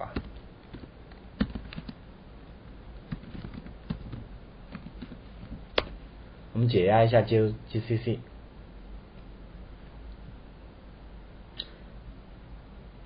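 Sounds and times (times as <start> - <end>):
keyboard keystrokes clicking: 0.2 - 2.0, 3.1 - 6.0.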